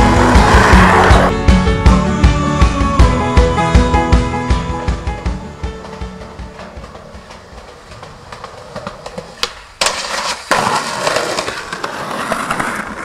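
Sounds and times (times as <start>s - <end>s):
skateboard wheels rolling on concrete: 0.0s - 1.6s, 3.0s - 13.0s
skateboard clacking: 5.5s - 13.0s.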